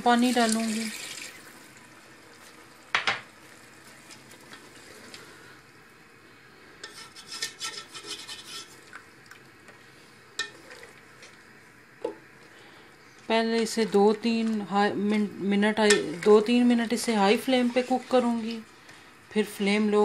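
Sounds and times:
spatula scraping pot: 0:06.8 - 0:08.8, 0:17.3 - 0:18.5
spatula stirring stew in pot: 0:06.8 - 0:09.0, 0:15.1 - 0:18.7.

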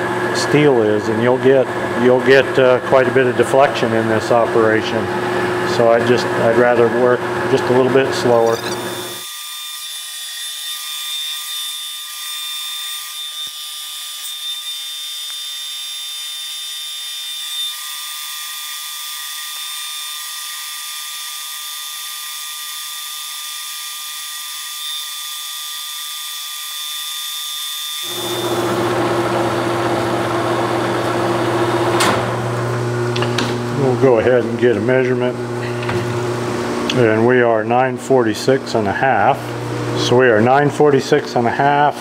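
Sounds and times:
metal lathe machine whine: 0:00.0 - 0:09.3, 0:28.0 - 0:34.0
cutting tool boring metal: 0:07.1 - 0:31.6.

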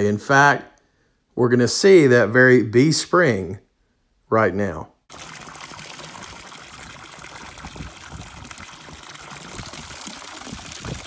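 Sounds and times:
water splashing into trough: 0:05.1 - 0:11.0.

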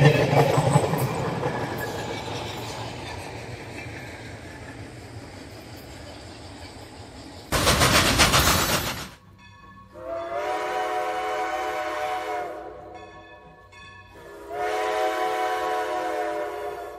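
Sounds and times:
loud rushing burst: 0:07.5 - 0:09.2
multi-tone train horn blasts: 0:09.9 - 0:13.1, 0:14.1 - 0:16.9.

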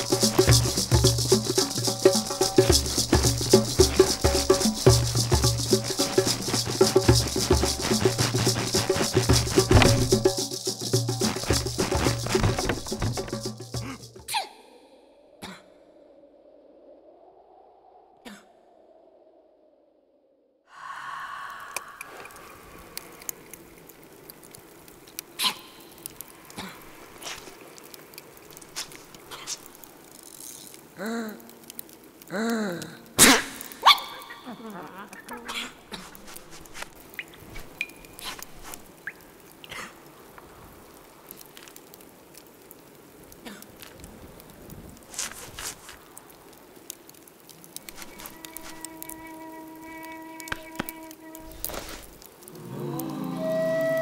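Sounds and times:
coals crackling and popping: 0:00.0 - 0:14.3, 0:21.3 - 0:53.2
breathy puff: 0:13.8 - 0:14.2.

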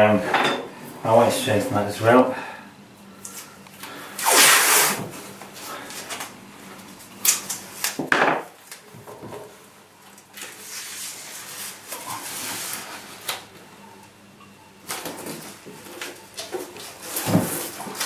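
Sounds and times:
masking tape ripping: 0:04.2 - 0:05.0.

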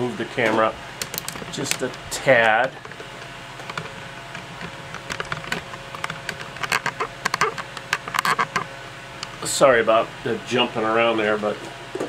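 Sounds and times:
steady fan hum: 0:00.0 - 0:12.0.

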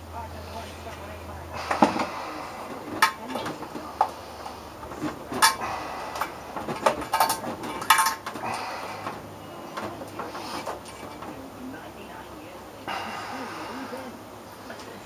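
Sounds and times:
metal tool clinking on metal: 0:06.9 - 0:08.4.

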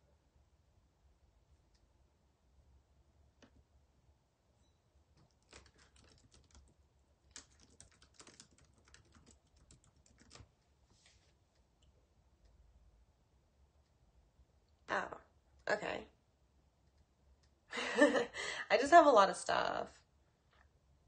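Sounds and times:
faint typing: 0:05.2 - 0:10.8.

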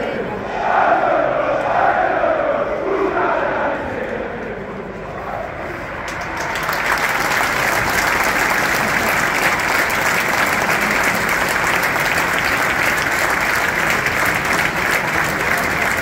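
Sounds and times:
crowd applauding: 0:06.0 - 0:16.0.

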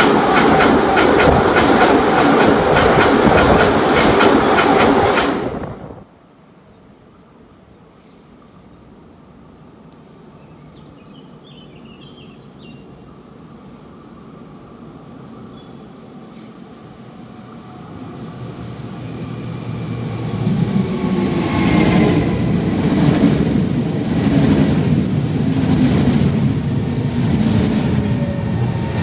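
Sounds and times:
train wheels rumbling on rails: 0:00.0 - 0:06.0, 0:18.1 - 0:29.0.

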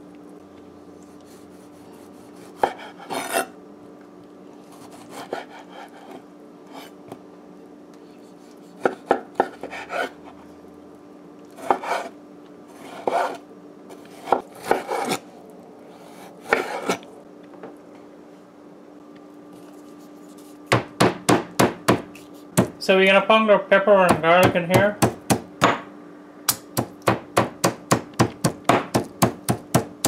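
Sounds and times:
knife slicing tomato: 0:11.5 - 0:12.1, 0:12.7 - 0:15.2, 0:21.9 - 0:22.7.

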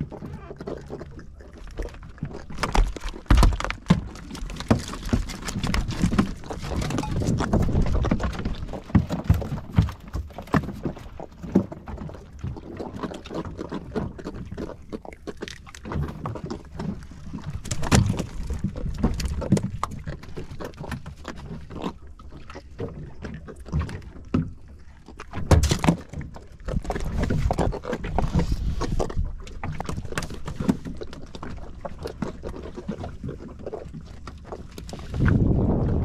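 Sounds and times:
water against hull: 0:00.0 - 0:36.0
knocks and slaps on boat: 0:03.3 - 0:10.9
wind rumble: 0:35.0 - 0:36.0.

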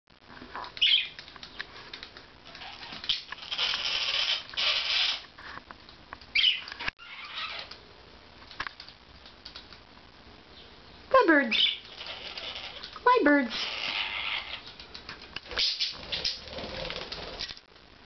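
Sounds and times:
wings fluttering: 0:00.6 - 0:05.2, 0:11.6 - 0:17.7
budgerigars chirping: 0:00.8 - 0:01.2, 0:06.4 - 0:07.6.

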